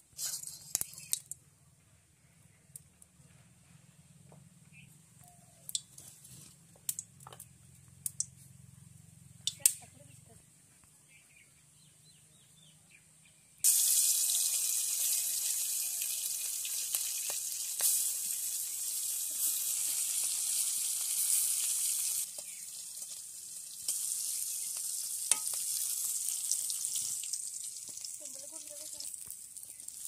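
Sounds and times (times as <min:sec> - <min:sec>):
hot oil sizzling in a wok: 0:13.6 - 0:30.0.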